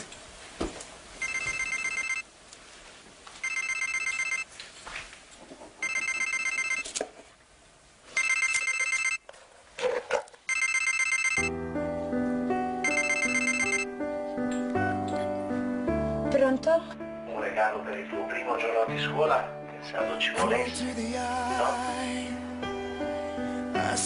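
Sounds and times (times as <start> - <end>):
phone ringing with trilling ringtone: 1.2 - 2.3, 3.4 - 4.5, 5.8 - 6.9, 8.1 - 9.2, 10.5 - 11.6, 12.8 - 13.9
music: 11.4 - 24.0.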